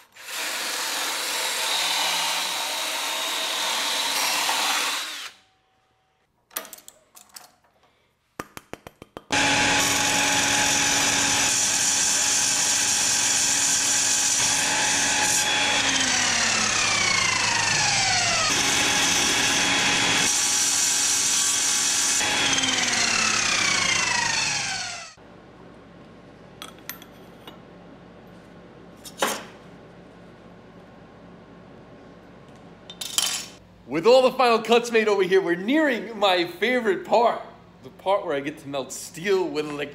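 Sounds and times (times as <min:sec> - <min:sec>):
miter saw cutting steel pipe: 0:09.4 - 0:25.2.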